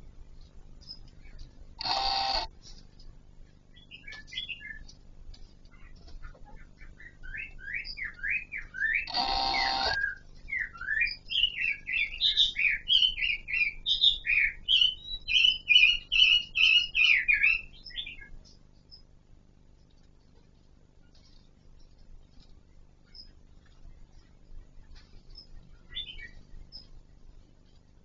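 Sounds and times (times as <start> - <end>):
harsh buzzy bird call: 1.8 - 2.5, 8.8 - 10.2
bird singing whistled notes: 7.0 - 18.3, 25.9 - 26.9.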